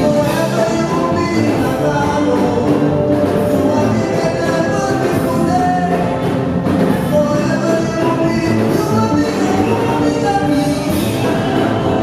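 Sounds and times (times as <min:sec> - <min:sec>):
gospel band playing: 0:00.0 - 0:12.0
lead singer singing: 0:00.0 - 0:12.0
backing singers singing: 0:06.8 - 0:12.0.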